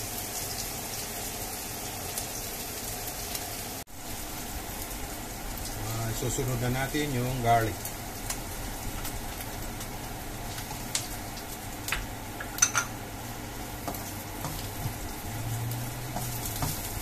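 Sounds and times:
garlic sizzling in hot oil: 0.0 - 17.0
spatula scraping and tapping pan: 13.8 - 15.1, 16.0 - 17.0.

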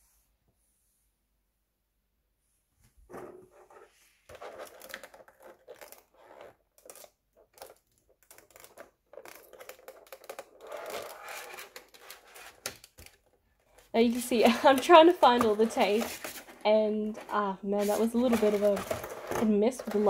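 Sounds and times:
craft knife scraping tape: 3.8 - 13.1
plastic tray crinkling and clicking: 6.7 - 17.4, 18.0 - 20.0.

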